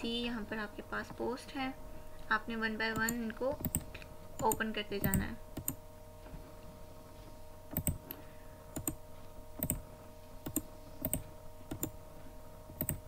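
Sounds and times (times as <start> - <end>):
faint steady hum: 0.0 - 13.0
computer mouse clicking: 2.9 - 5.8, 7.7 - 8.2, 8.8 - 9.0, 9.6 - 9.8, 10.4 - 12.0, 12.7 - 13.0.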